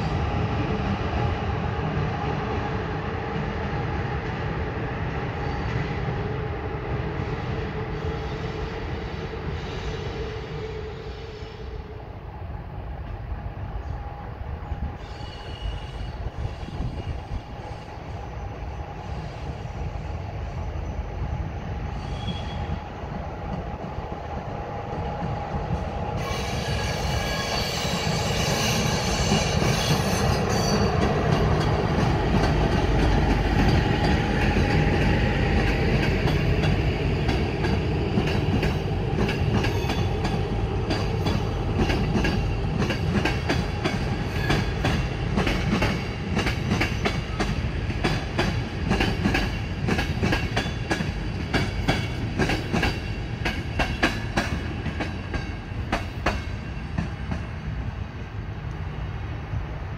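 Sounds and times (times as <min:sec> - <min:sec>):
train rumbling: 0:00.0 - 0:59.9
squealing train wheels: 0:07.1 - 0:12.2, 0:14.8 - 0:23.5, 0:25.7 - 0:57.7.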